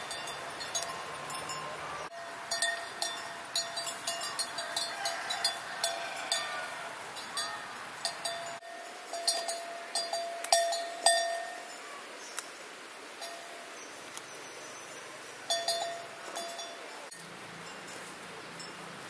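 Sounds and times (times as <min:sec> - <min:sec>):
metallic bell clinking: 0:00.0 - 0:06.6, 0:07.2 - 0:11.9, 0:15.5 - 0:17.0.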